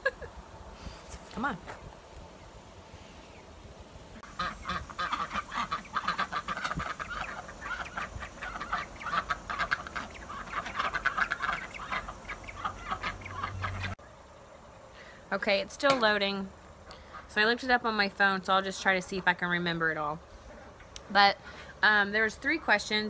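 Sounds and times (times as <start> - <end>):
ducks quacking: 4.2 - 14.0.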